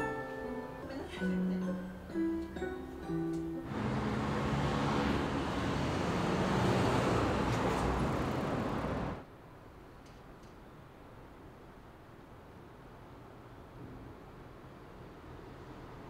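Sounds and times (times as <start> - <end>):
faint room hiss: 0.0 - 3.8, 9.2 - 16.0
passing road traffic: 2.2 - 9.2.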